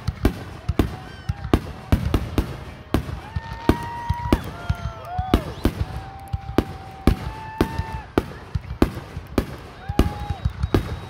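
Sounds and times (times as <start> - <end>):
firework shells bursting: 0.0 - 11.0
high whistling tones: 5.3 - 6.0, 9.9 - 11.0.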